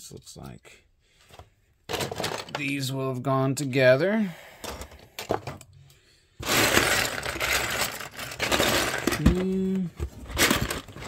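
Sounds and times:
plastic bricks clattering: 0:01.9 - 0:02.8, 0:06.4 - 0:11.0.

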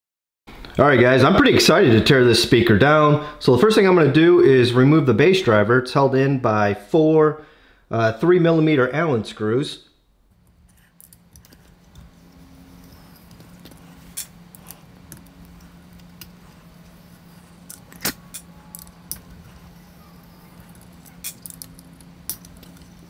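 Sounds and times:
low hum: 0:10.0 - 0:23.0.

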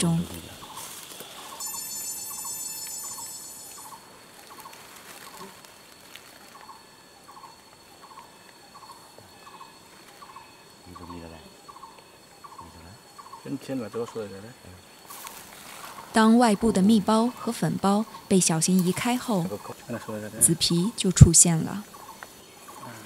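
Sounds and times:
high insect whine: 0:00.0 - 0:23.0
high buzz: 0:01.4 - 0:04.0.

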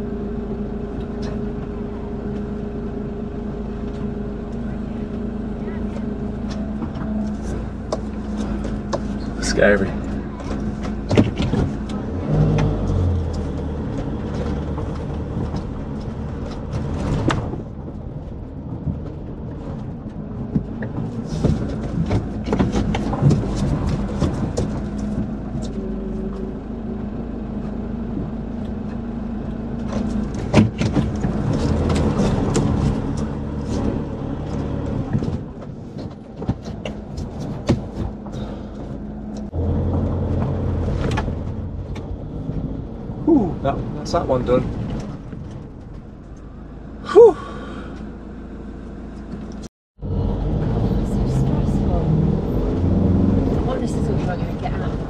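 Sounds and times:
motorhome engine running: 0:00.0 - 0:55.0
clicks and knocks on rough track: 0:05.8 - 0:26.5, 0:27.6 - 0:46.5.

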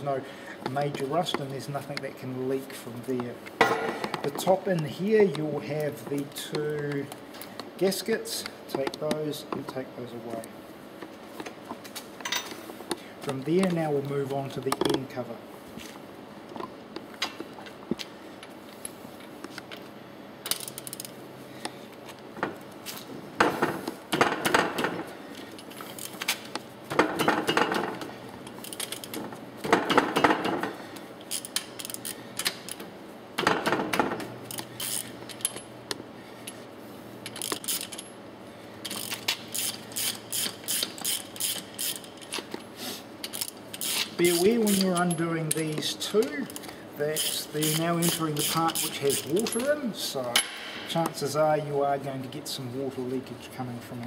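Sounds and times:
ratchet clicking: 0:31.2 - 0:32.8, 0:34.5 - 0:35.6, 0:37.2 - 0:38.1, 0:38.8 - 0:42.4, 0:43.2 - 0:49.7.

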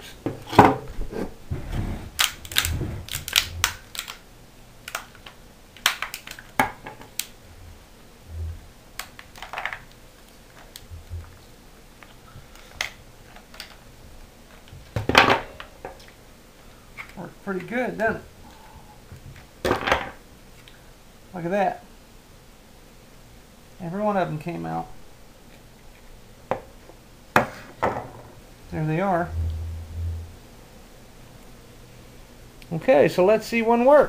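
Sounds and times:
plastic tray clicks and cracks: 0:02.2 - 0:04.2, 0:04.8 - 0:07.3.

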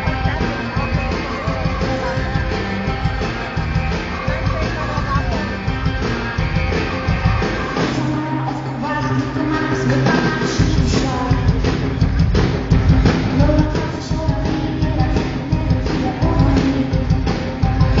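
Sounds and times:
bass guitar: 0:00.0 - 0:18.0
drums: 0:00.0 - 0:18.0
person singing: 0:07.5 - 0:11.7, 0:13.2 - 0:18.0.

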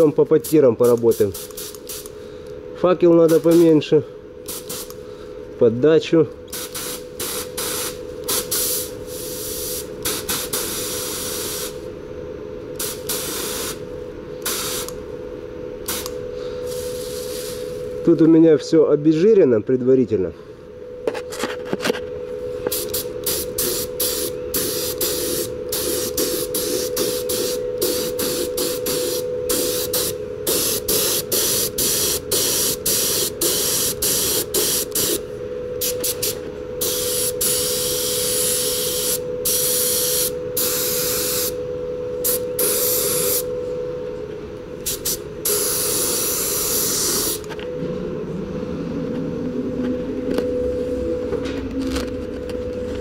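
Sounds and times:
steady hum: 0:00.0 - 0:53.0
spray gun hissing in bursts: 0:06.5 - 0:11.8, 0:12.8 - 0:13.8, 0:14.4 - 0:14.9, 0:16.7 - 0:17.8, 0:22.7 - 0:35.2, 0:35.8 - 0:41.6, 0:42.2 - 0:43.5, 0:44.9 - 0:47.5.

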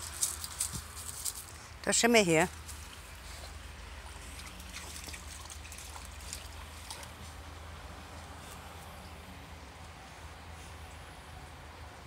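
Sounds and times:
brook trickling: 0:02.5 - 0:08.3
small water splashes: 0:02.8 - 0:07.4.

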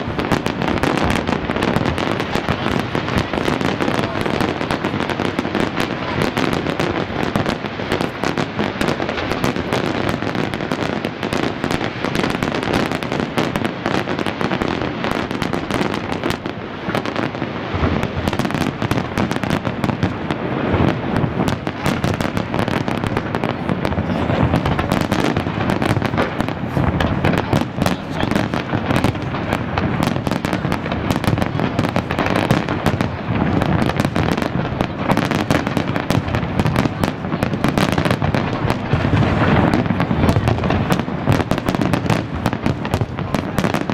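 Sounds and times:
fireworks bangs and crackles: 0:00.0 - 0:43.9.

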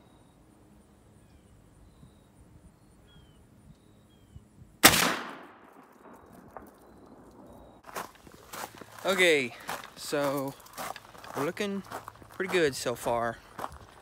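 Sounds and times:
rifle shot with echo: 0:04.8 - 0:07.8.

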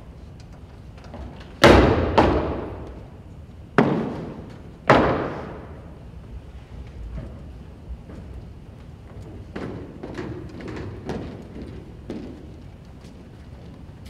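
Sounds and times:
boots stamping on a stage: 0:07.2 - 0:13.2.

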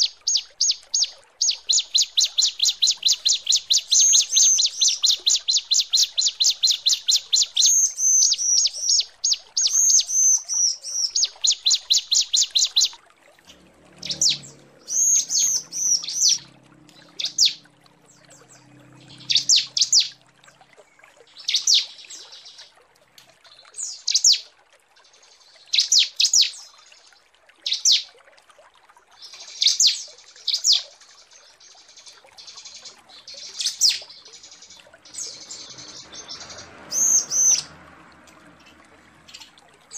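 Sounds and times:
bird down-slurred notes: 0:13.5 - 0:20.2.

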